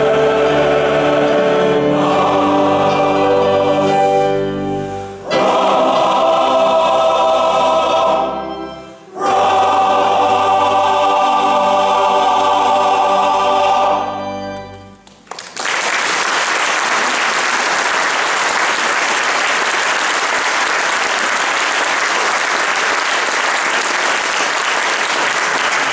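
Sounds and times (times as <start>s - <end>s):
male choir singing a chord: 0.0s - 14.6s
audience applause: 15.0s - 25.9s.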